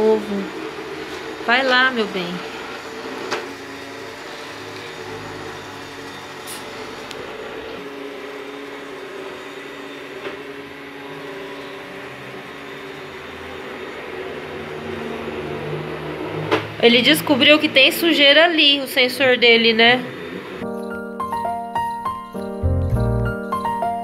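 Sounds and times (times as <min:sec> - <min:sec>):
robot vacuum motor hum: 0:00.0 - 0:16.8.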